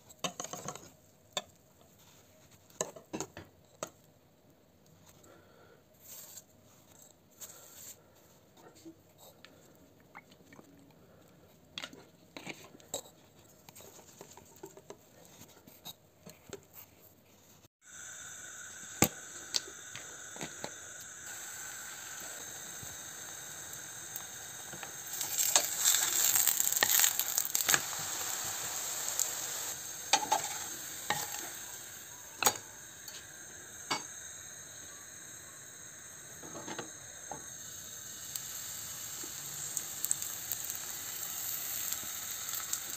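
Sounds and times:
batter sizzling in a pan: 17.8s - 42.9s.

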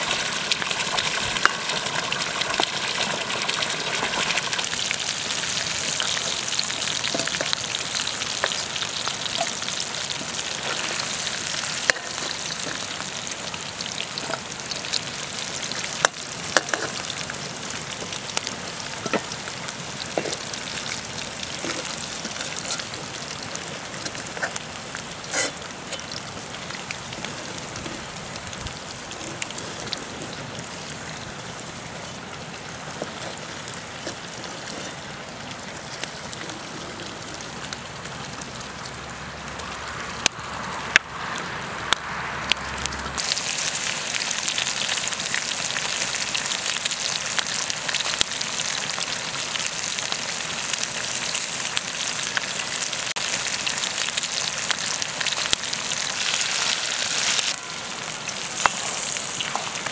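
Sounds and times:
oil sizzling in a wok: 0.0s - 59.9s
potatoes frying in oil: 0.0s - 59.9s.

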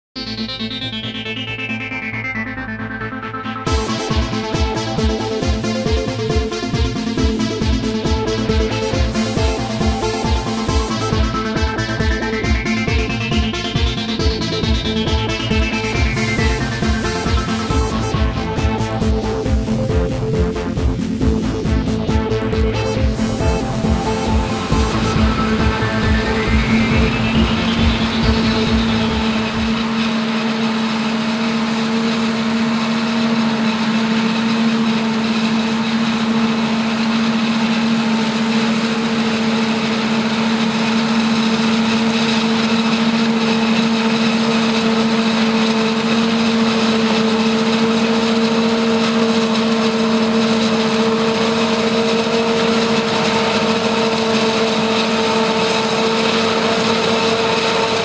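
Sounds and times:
truck engine: 0.2s - 58.0s
forage harvester chopping maize: 29.9s - 58.0s.

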